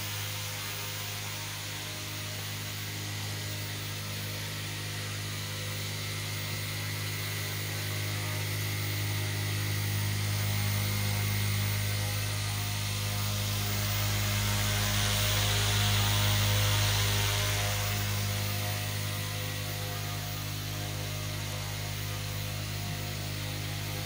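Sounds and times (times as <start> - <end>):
drone motor hum: 0.0 - 24.0
propeller hiss: 7.7 - 24.0.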